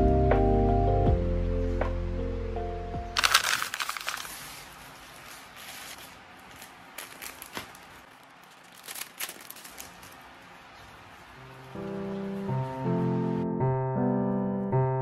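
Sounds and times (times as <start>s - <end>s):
plastic tearing: 3.2s - 10.3s
plastic packaging crinkling: 3.2s - 10.9s.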